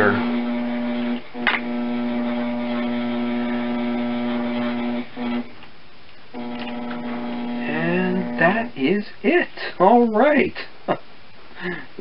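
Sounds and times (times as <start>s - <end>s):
potter's wheel motor humming: 0.0s - 5.6s, 6.4s - 8.8s.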